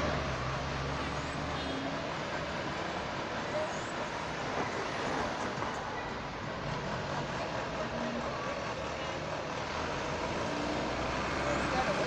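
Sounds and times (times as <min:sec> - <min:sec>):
bus engine running: 0:00.0 - 0:12.0
street traffic noise: 0:00.0 - 0:12.0.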